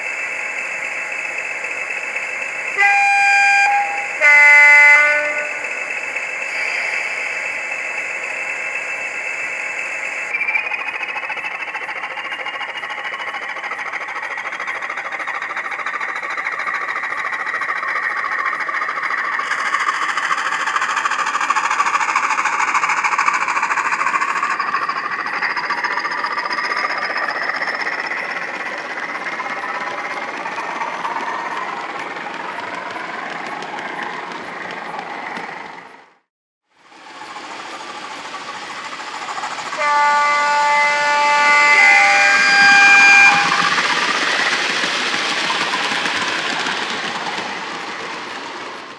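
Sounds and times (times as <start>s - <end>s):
thin whistle: 0.0s - 12.6s
model locomotive diesel engine sound: 0.0s - 48.9s.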